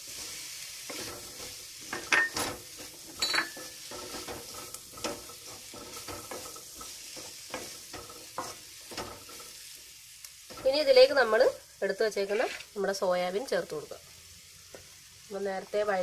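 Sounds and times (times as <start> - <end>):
food sizzling in pan: 0.0 - 16.0
spatula scraping metal pan: 0.9 - 9.6, 12.2 - 12.8.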